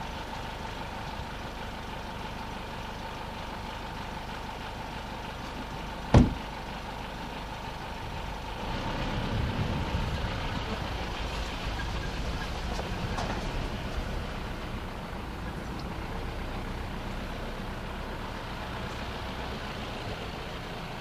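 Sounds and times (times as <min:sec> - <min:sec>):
car engine and road rumble: 0:00.0 - 0:21.0
sharp knock: 0:06.1 - 0:06.4.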